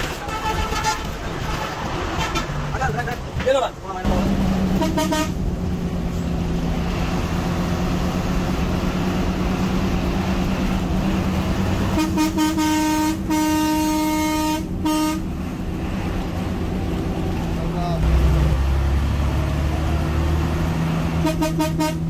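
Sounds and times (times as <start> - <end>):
coach engine and road noise: 0.0 - 22.0
vehicle horn: 0.1 - 2.5, 4.8 - 5.4, 11.9 - 15.3, 21.2 - 22.0.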